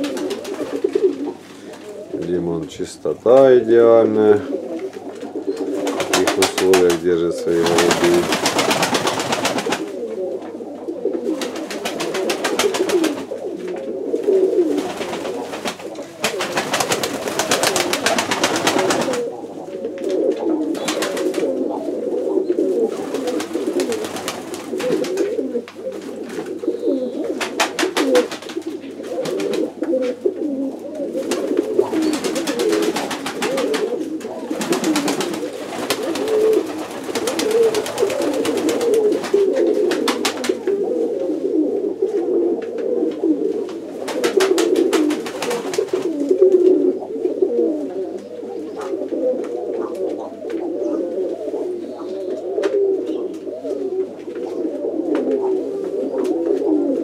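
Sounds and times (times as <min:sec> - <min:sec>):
wings flapping: 0:00.0 - 0:02.0, 0:04.7 - 0:10.1, 0:11.2 - 0:19.4, 0:20.0 - 0:21.7, 0:22.6 - 0:30.1, 0:31.1 - 0:40.8, 0:43.6 - 0:46.7
pigeons cooing: 0:00.0 - 0:57.0.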